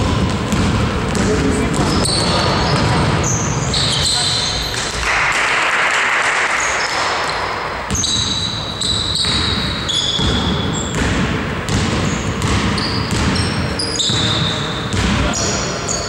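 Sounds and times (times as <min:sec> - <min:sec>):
ball bouncing: 0:00.0 - 0:15.6
shoes squeaking on floor: 0:01.2 - 0:05.0, 0:06.6 - 0:11.1, 0:11.9 - 0:16.0.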